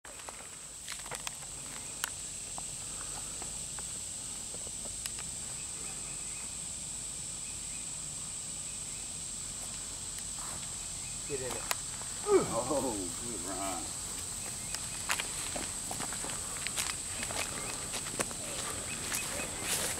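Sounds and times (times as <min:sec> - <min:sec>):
footsteps on gravel: 0:00.1 - 0:01.9, 0:11.4 - 0:19.9
high-pitched insect drone: 0:00.1 - 0:19.9.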